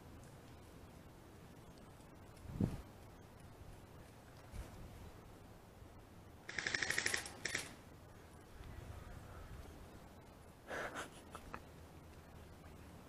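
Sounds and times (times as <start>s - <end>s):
airsoft gun firing: 6.5s - 7.8s.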